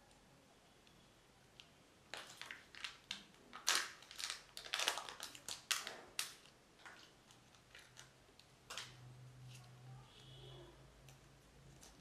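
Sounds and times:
plastic wrapping crinkling: 2.1s - 9.7s.

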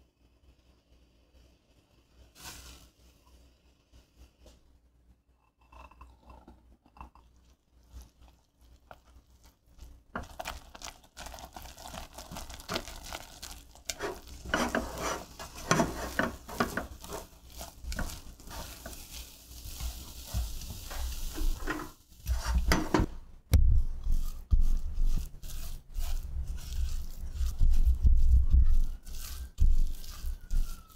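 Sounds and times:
spatula stirring dough in saucepan: 6.6s - 30.9s
dull knocks of mixing dough: 13.9s - 19.1s, 19.7s - 30.9s.

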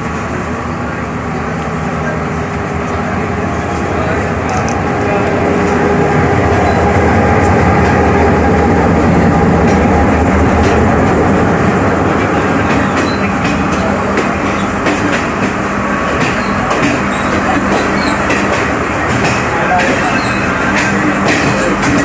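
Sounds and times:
diesel locomotive engine rumble: 0.0s - 22.0s
train carriages rattling: 2.9s - 22.0s
wheels clacking on rail joints: 9.4s - 22.0s.

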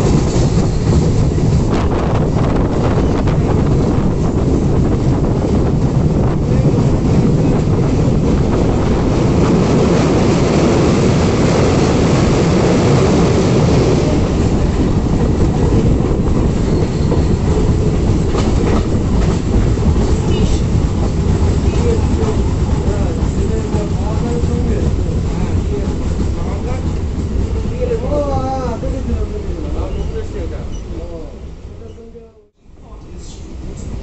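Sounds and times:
train wheels clattering: 6.9s - 30.9s.

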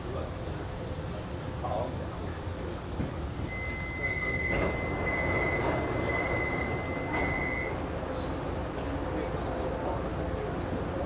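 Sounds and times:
train door warning beeps: 3.5s - 7.8s.

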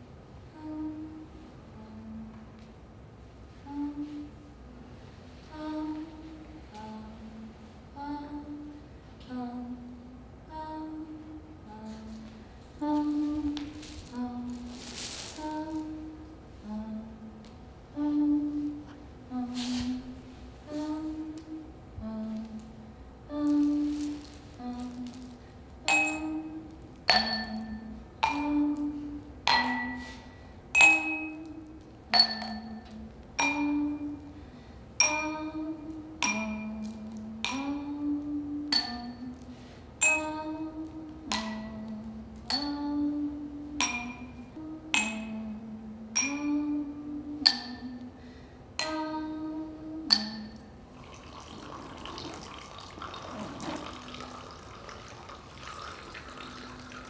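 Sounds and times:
stone chips clinking in glasses: 25.9s - 26.5s, 27.1s - 28.6s, 30.8s - 31.5s, 32.2s - 33.6s
water pouring into glasses: 50.9s - 57.0s.

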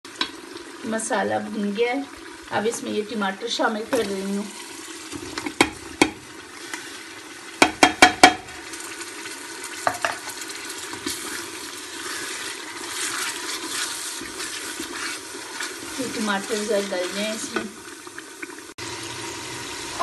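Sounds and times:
food sizzling in hot oil: 0.0s - 20.0s
stirring in pot: 5.0s - 18.6s
sharp knocks: 7.6s - 8.5s.

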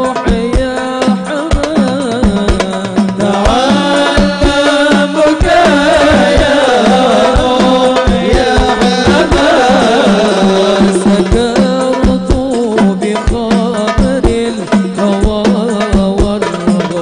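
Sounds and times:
hand frame drums: 0.0s - 17.0s
man singing ornamented melody: 0.0s - 17.0s.

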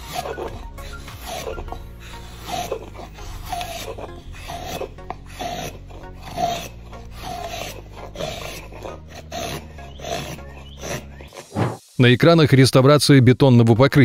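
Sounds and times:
drawknife shaving wood: 0.0s - 11.8s.

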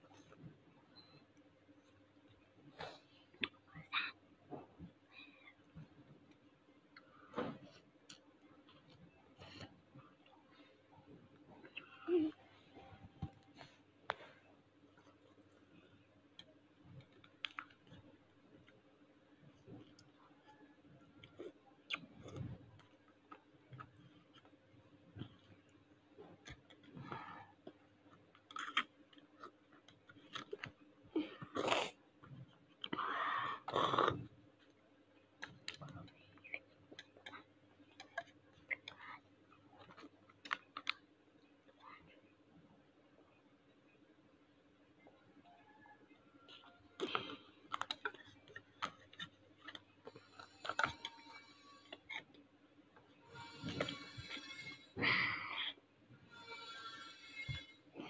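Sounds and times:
chewing: 26.2s - 30.8s, 46.5s - 52.3s
plastic cups and spoon clicking: 47.0s - 52.3s.

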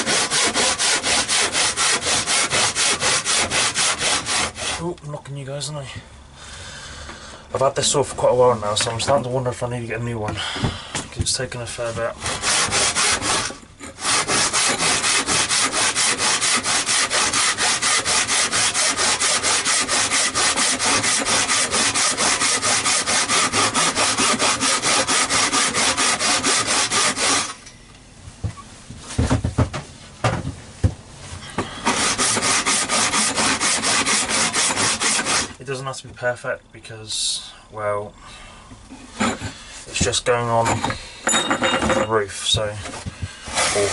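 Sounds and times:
handsaw cutting wood: 0.0s - 4.9s, 12.2s - 27.6s, 31.8s - 35.6s, 43.4s - 43.9s
knocks on wood: 29.2s - 31.0s.

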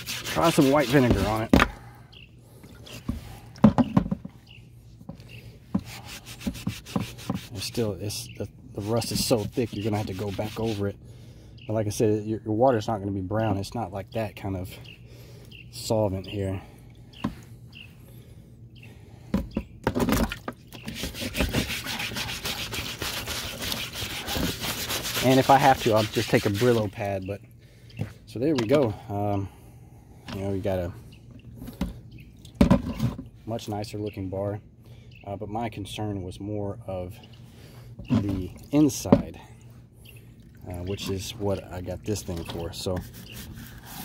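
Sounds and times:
scrub brush scraping metal: 0.0s - 1.6s, 5.7s - 11.0s, 20.8s - 27.1s, 40.9s - 44.0s
knocks: 3.6s - 4.3s.

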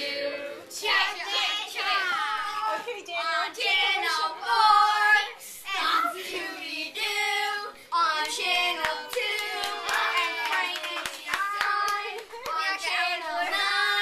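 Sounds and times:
hand claps: 8.2s - 12.7s
children singing: 11.3s - 14.0s.

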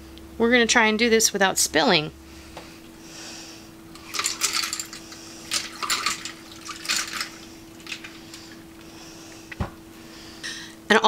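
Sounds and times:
liquid pouring and splashing: 4.0s - 8.9s.

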